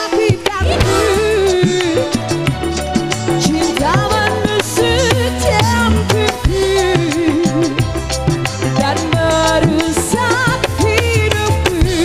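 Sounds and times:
live band playing instrumental: 0.0 - 12.0
wavering melody line: 0.6 - 2.7, 3.3 - 6.5.

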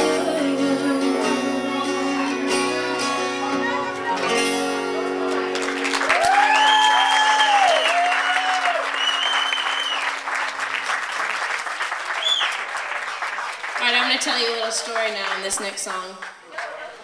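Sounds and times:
acoustic guitar chord ringing: 0.0 - 5.8
audience clapping and cheering: 5.1 - 17.0
whoops: 6.0 - 10.1.

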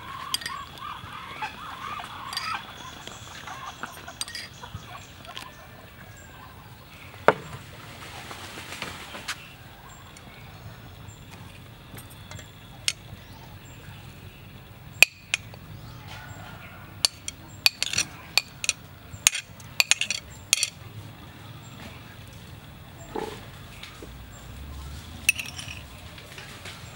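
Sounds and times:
metal spoon clinking on ceramic plate: 4.2 - 4.6, 17.0 - 20.8, 25.3 - 25.8.

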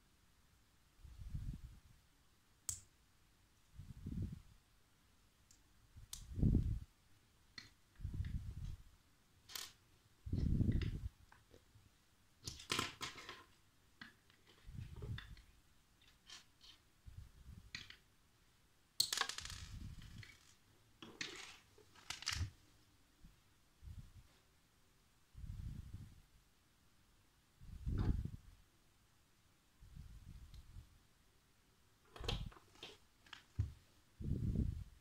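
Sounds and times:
plastic bricks clicking and rattling: 19.0 - 22.5.

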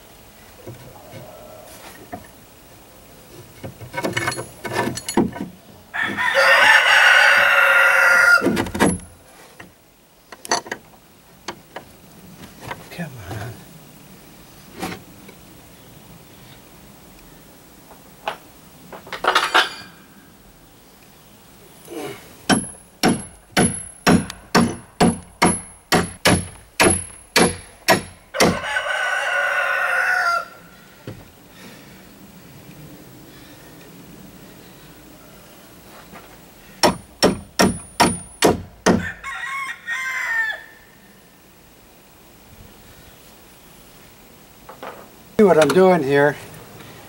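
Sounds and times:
rooster crowing: 0.8 - 2.1, 5.9 - 8.7, 28.3 - 31.0, 38.9 - 41.3
sharp knocks: 22.5 - 28.6, 36.8 - 39.1.

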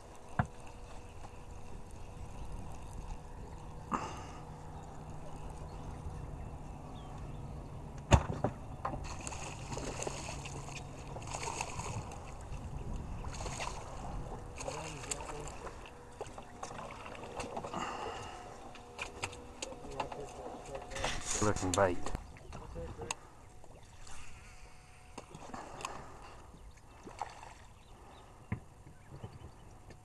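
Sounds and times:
idling boat motor hum: 0.0 - 30.0
water splashing beside boat: 8.0 - 30.0.

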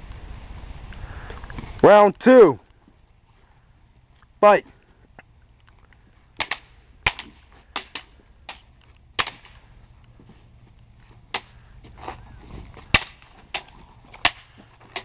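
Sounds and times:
crutches clacking together: 11.3 - 15.0.

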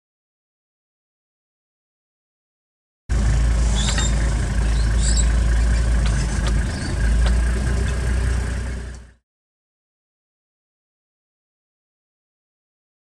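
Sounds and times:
vehicle engine rumbling: 3.1 - 9.2.

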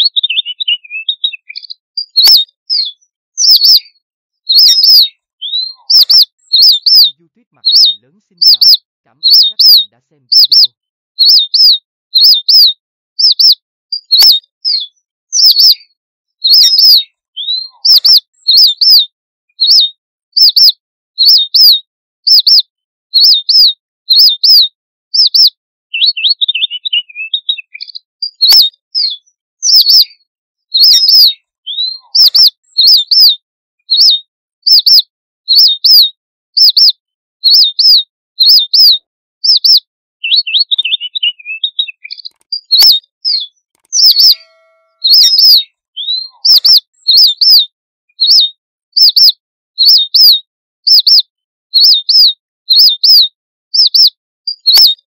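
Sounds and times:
soft jumbled twittering: 0.0 - 19.0, 40.6 - 47.5
finch flock chirping: 0.0 - 51.2, 51.8 - 55.0.

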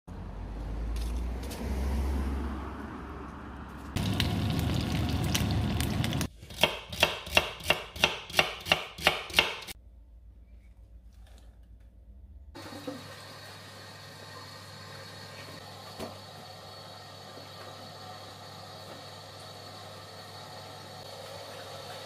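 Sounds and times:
peppers sizzling in frying pan: 4.0 - 6.3
knife chopping: 6.5 - 9.8.

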